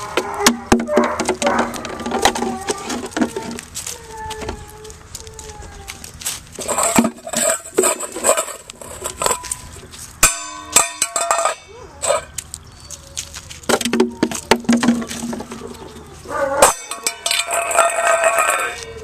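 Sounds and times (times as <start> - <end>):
metal bowl clanging on concrete: 10.2 - 12.3, 16.6 - 19.0.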